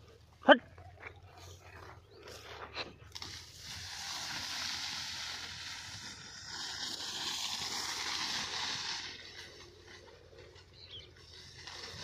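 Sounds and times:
wheat plants rustling: 1.2 - 12.0.

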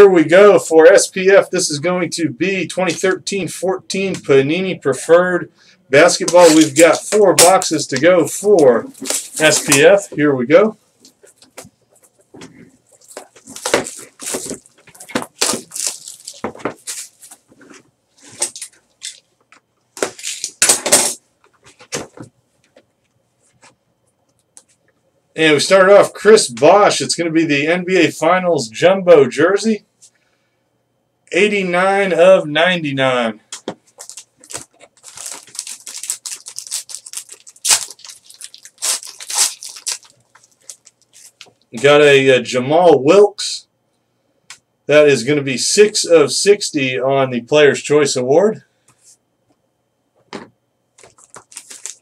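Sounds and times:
plastic wrap crinkling and tearing: 6.2 - 10.0, 12.9 - 17.4, 18.2 - 19.2, 20.0 - 21.1, 34.0 - 41.6, 51.0 - 52.0.

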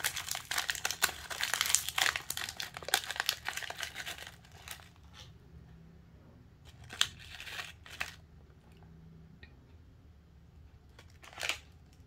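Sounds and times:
snack wrapper crinkling: 0.0 - 5.0, 6.7 - 8.2, 10.9 - 12.0.

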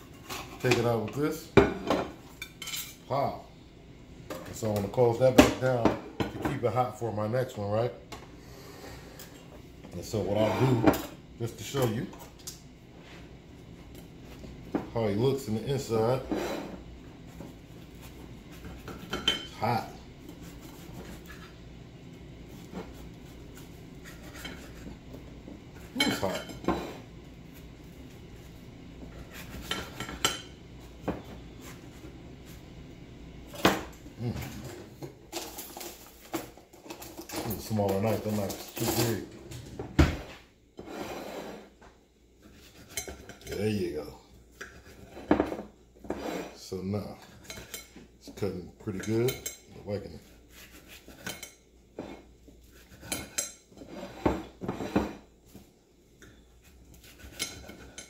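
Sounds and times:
knife scraping and knocking plate: 50.6 - 55.3.

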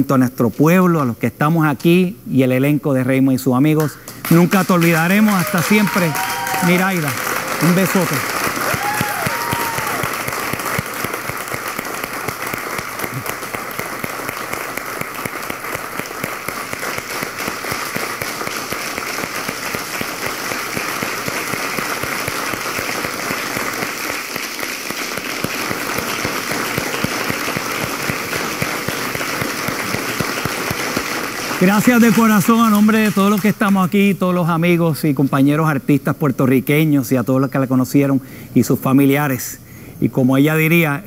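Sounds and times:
audience applause: 4.2 - 33.7.

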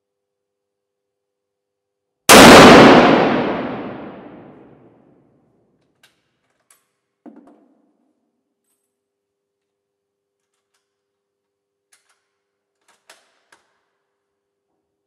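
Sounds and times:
rifle shot echoing: 2.3 - 4.7.

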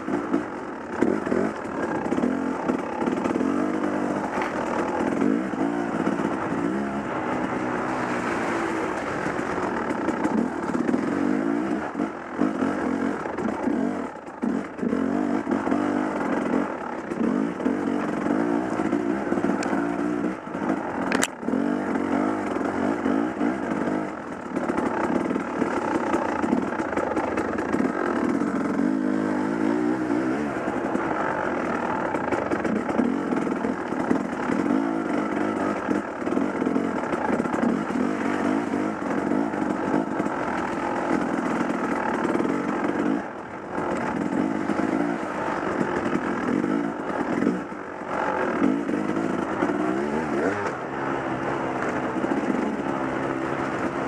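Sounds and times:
dirt bike engine revving: 0.0 - 54.0
sharp click: 21.1 - 21.4.

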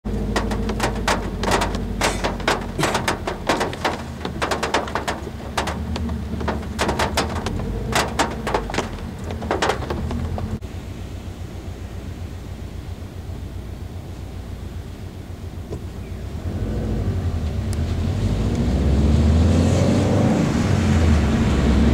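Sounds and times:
car engine hum: 0.0 - 18.2
drips knocking on metal car roof: 0.1 - 10.6.

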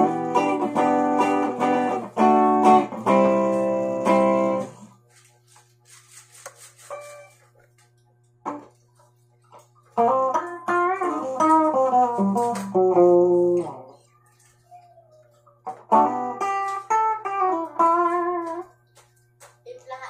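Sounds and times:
clean electric guitar notes: 0.0 - 4.8.

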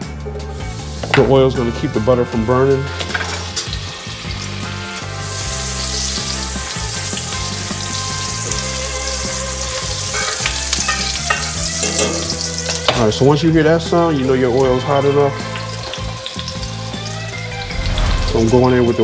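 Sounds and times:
butter sizzling in hot oil: 0.4 - 17.7
spatula scraping skillet: 10.0 - 12.4.

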